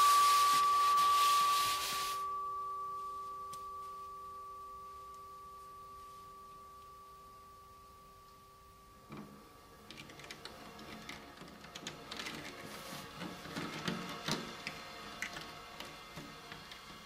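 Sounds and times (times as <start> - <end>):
ringing string tones: 0.0 - 10.8.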